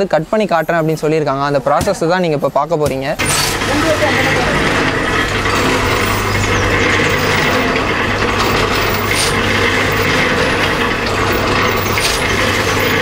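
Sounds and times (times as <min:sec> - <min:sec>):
grass cutter machine humming: 0:03.2 - 0:13.0.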